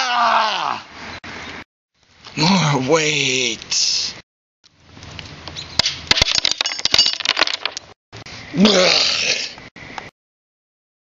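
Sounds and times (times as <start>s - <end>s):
short vocal cry: 8.5s - 9.6s.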